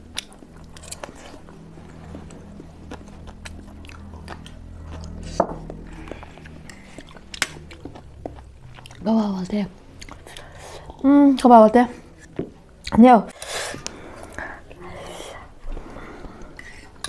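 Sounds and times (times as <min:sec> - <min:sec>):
chewing noodles: 0:00.0 - 0:09.1.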